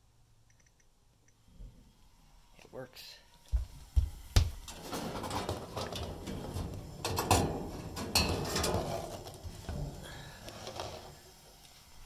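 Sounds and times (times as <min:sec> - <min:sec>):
sharp clicks: 0:00.4 - 0:01.4
sheet metal clattering and scraping: 0:04.7 - 0:11.2.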